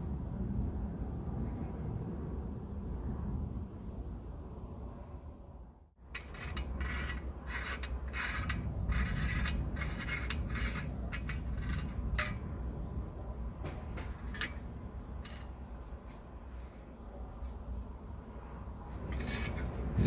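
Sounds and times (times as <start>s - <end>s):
metal threads grating: 6.0s - 15.7s, 18.9s - 20.0s
faint clicks of metal parts: 6.1s - 12.6s, 13.6s - 17.6s
sharp metal click: 6.2s - 12.6s.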